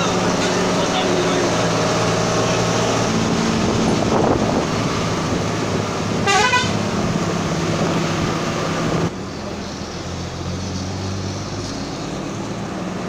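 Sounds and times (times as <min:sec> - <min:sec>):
road noise: 0:00.0 - 0:13.0
vehicle engine running: 0:00.0 - 0:13.0
wavering multi-tone horn: 0:06.2 - 0:06.8.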